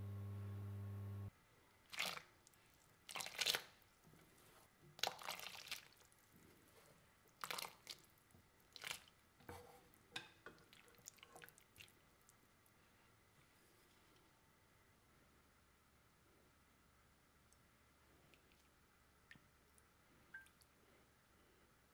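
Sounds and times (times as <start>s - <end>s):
wet splashes in water bowl: 1.9s - 3.8s, 5.0s - 6.2s, 7.3s - 8.1s, 8.7s - 9.1s
water dripping: 18.3s - 20.7s.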